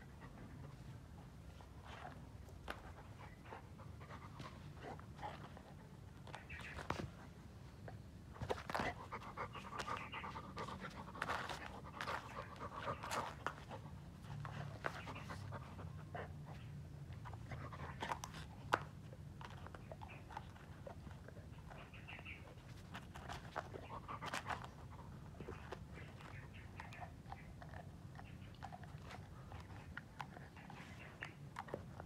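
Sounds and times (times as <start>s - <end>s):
dog panting: 8.5s - 18.8s.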